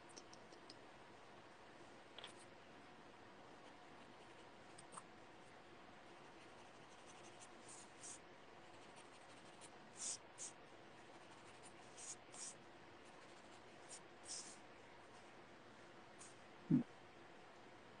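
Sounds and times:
pencil scratching on paper: 0:06.1 - 0:14.6.

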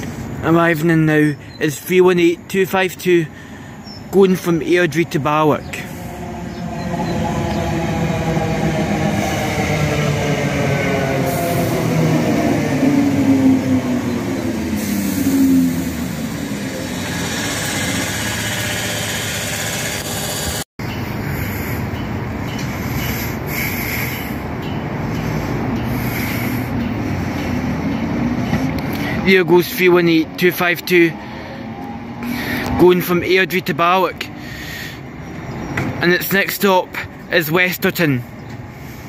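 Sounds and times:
train wheels rumbling: 0:00.0 - 0:39.0
traction motor whine falling: 0:11.0 - 0:20.6.

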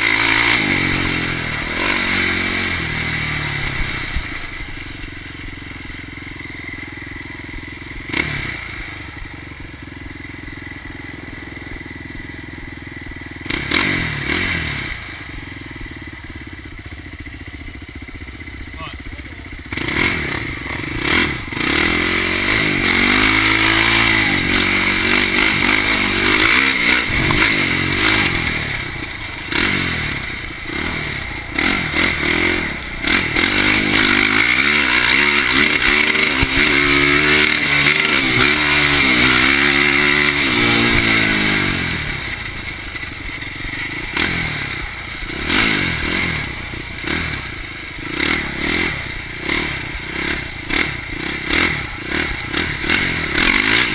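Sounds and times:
quad engine revving: 0:00.0 - 0:16.8, 0:17.9 - 0:53.9.

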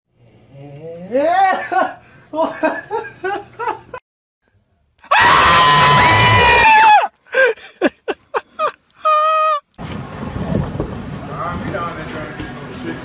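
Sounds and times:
high-pitched scream of fright: 0:05.0 - 0:07.2, 0:09.0 - 0:09.6.

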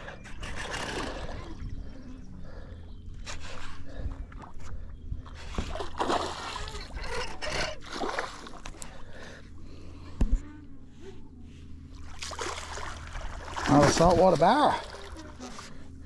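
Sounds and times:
water splashing beside boat: 0:04.4 - 0:09.2, 0:11.9 - 0:16.0.

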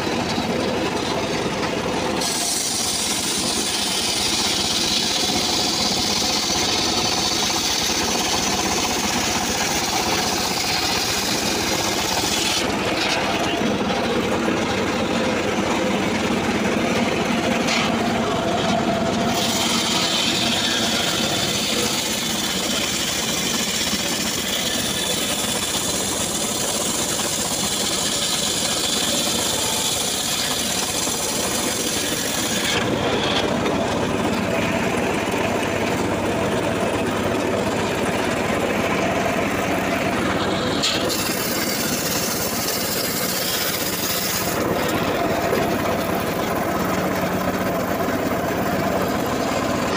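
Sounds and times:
table saw motor running: 0:00.0 - 0:49.9
saw blade hissing through wood: 0:02.1 - 0:13.4, 0:17.4 - 0:32.9, 0:40.4 - 0:44.6.

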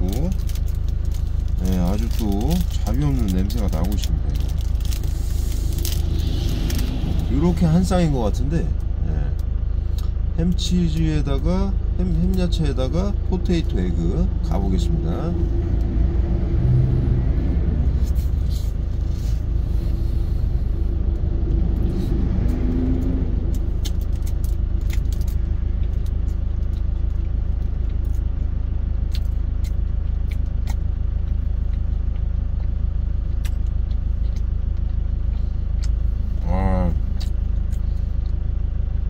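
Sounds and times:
truck engine idling: 0:00.0 - 0:39.0
faint chewing clicks: 0:21.1 - 0:36.0.

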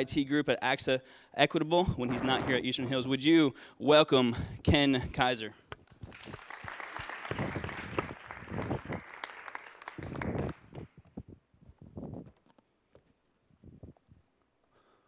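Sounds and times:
audience applauding: 0:05.8 - 0:10.9.

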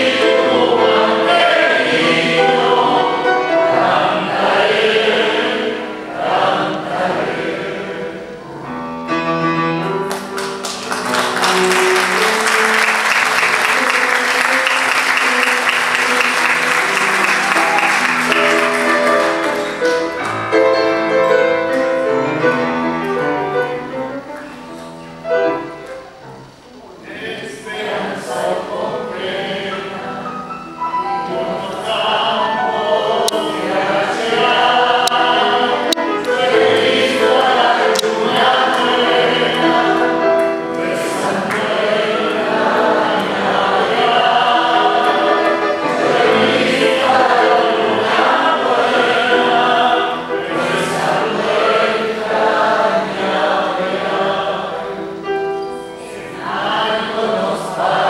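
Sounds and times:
man singing classical: 0:00.0 - 0:04.0, 0:26.9 - 0:30.3, 0:31.1 - 0:41.8
grand piano: 0:00.0 - 0:58.0
hand clapping: 0:10.0 - 0:20.5.

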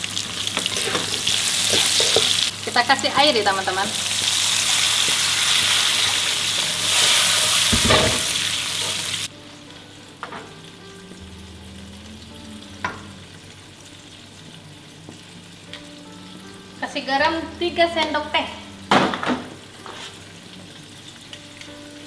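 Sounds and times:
water sizzling in hot oil: 0:00.0 - 0:11.2, 0:19.6 - 0:22.0.

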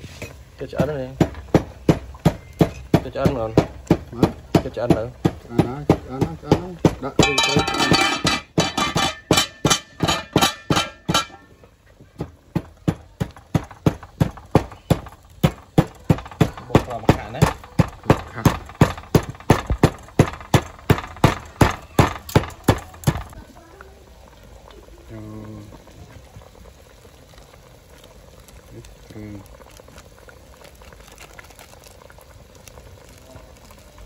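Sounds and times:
pestle pounding in wooden mortar: 0:00.7 - 0:11.4, 0:12.2 - 0:23.4.

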